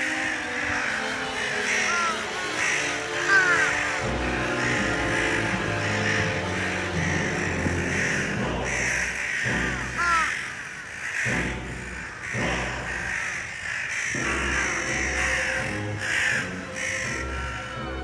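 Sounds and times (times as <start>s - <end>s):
crows cawing: 0.0s - 18.0s.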